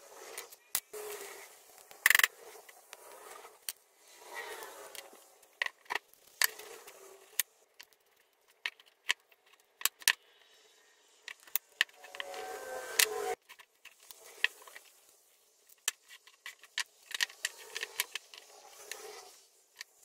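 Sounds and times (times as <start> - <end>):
wood sliding scrapes: 0.0 - 5.5, 12.0 - 13.4, 17.4 - 19.5
wooden blocks clicking and knocking: 4.5 - 10.4, 15.6 - 19.1.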